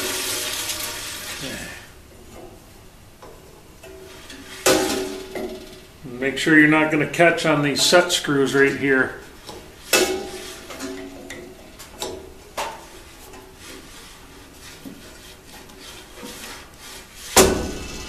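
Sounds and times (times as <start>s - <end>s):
loud metal clank: 3.8s - 6.0s, 17.4s - 18.0s.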